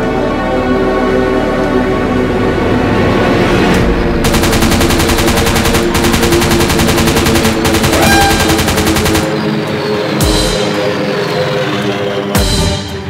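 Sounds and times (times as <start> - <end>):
background music: 0.0 - 13.0
machine-gun firing bursts: 4.2 - 9.4.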